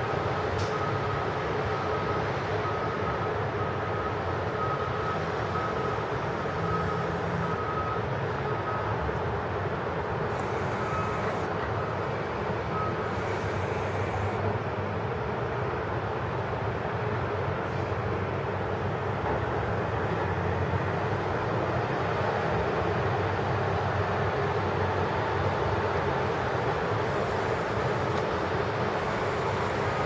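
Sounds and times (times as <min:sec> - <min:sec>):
distant road traffic: 0:05.1 - 0:15.6, 0:16.6 - 0:30.0
faint high whine: 0:10.3 - 0:12.0, 0:12.7 - 0:14.4, 0:27.0 - 0:30.0.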